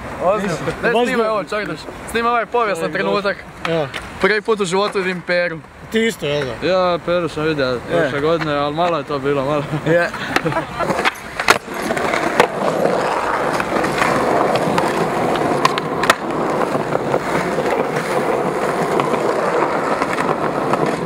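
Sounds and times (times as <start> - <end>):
skateboard wheels rolling on concrete: 0.0 - 21.0
skateboard landing clack: 10.3 - 21.0.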